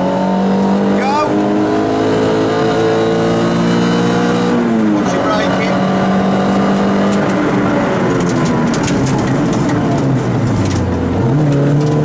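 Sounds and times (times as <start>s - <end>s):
car engine revving from inside cabin: 0.0s - 7.5s.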